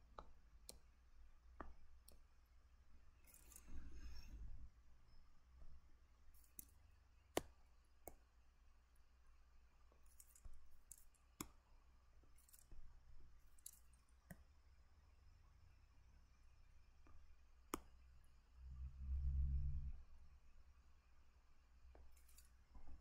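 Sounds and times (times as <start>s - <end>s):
low steady hum: 0.0s - 23.0s
clicks and scratchy strokes: 3.2s - 4.4s, 22.0s - 22.6s.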